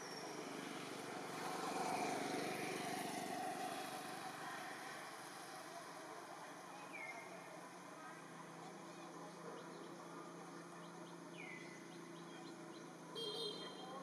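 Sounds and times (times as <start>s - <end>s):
vehicle passing: 0.0s - 6.4s.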